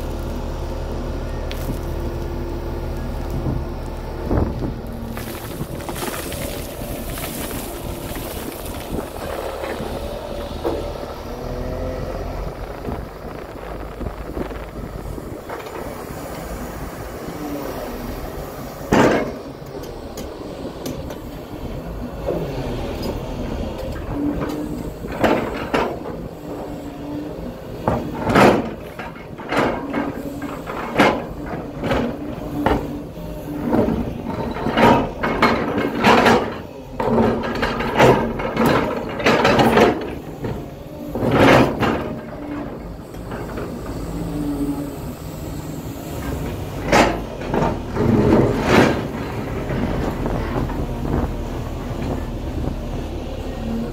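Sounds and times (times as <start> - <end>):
excavator engine running: 0.0 - 53.9
bucket clanking against rocks: 5.1 - 10.0.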